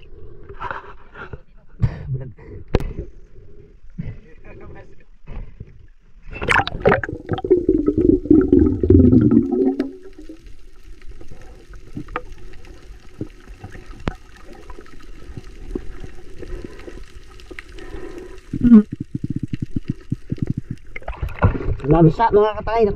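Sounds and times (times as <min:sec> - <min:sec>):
muffled underwater ambience: 0:00.0 - 0:21.7
water splashing and bubbling: 0:06.2 - 0:22.0
sharp underwater clicks: 0:18.4 - 0:21.4.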